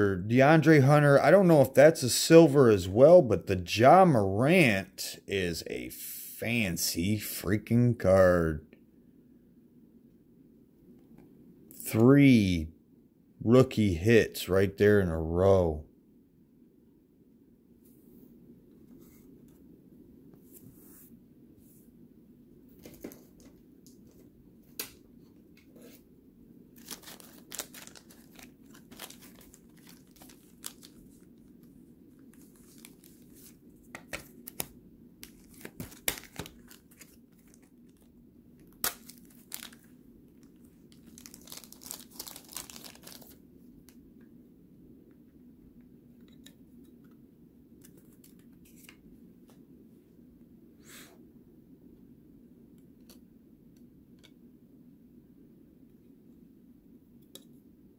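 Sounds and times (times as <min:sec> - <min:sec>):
cards and wrappers rustling: 0:26.7 - 0:43.4.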